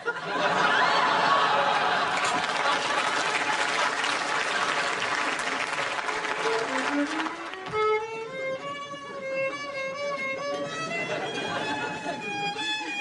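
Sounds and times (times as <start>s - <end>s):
studio audience reaction: 0.2s - 6.4s.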